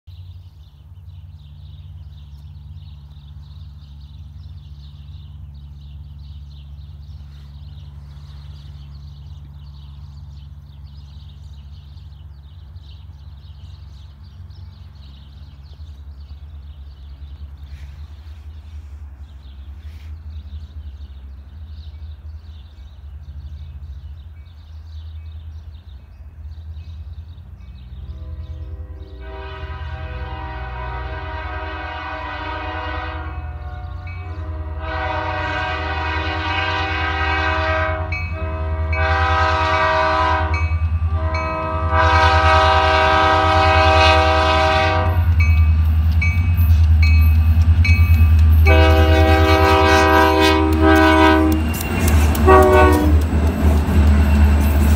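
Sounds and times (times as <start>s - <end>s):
diesel engine rumble: 0.1s - 54.9s
locomotive horn blasts: 28.0s - 45.3s, 48.6s - 53.3s.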